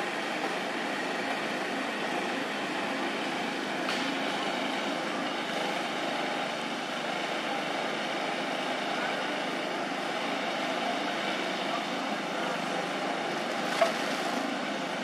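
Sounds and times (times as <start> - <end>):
faint indistinct voices: 7.2 - 15.0.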